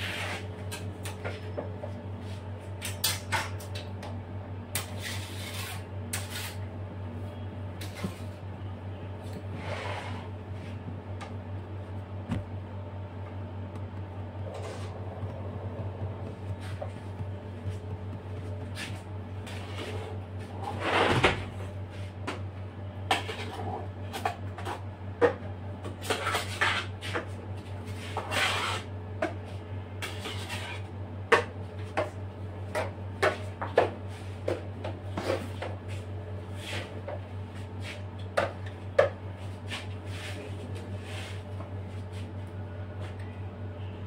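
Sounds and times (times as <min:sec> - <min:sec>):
palette knife scraping bowl: 0:04.8 - 0:06.6
low hum: 0:08.4 - 0:20.6.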